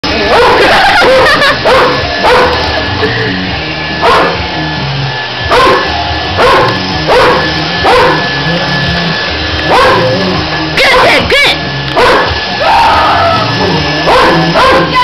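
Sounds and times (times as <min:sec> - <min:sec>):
large dog barking: 0:00.2 - 0:02.7, 0:04.0 - 0:04.4, 0:05.5 - 0:08.3, 0:09.6 - 0:10.3, 0:11.9 - 0:12.4, 0:14.0 - 0:15.0.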